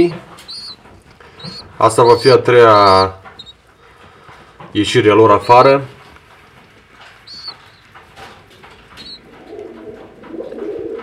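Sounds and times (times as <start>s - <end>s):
pigeons cooing: 0.0s - 4.6s, 7.1s - 11.0s
light taps: 0.0s - 10.5s
faint high chirps: 0.4s - 0.8s, 1.4s - 3.6s, 7.2s - 7.9s, 9.0s - 9.2s.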